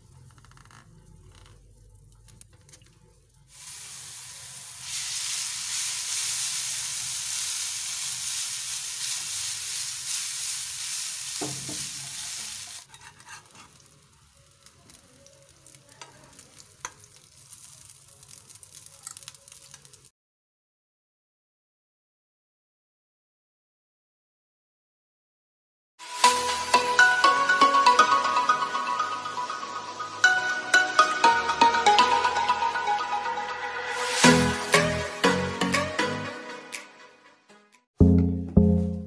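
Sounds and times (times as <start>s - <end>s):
noodles sizzling in a pan: 2.9s - 20.1s, 26.0s - 28.4s, 33.9s - 35.0s
utensils tapping and scraping pan: 11.4s - 12.2s, 12.8s - 14.0s.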